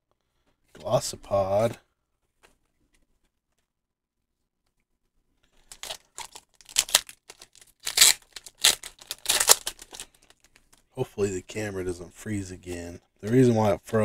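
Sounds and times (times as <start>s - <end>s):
foil wrapper crinkling and tearing: 5.6s - 10.8s.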